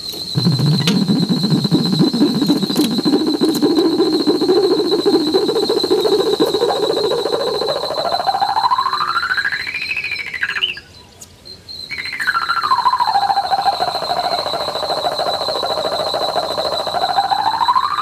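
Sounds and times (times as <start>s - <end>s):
steady high whine: 0.0s - 11.1s, 11.9s - 18.0s.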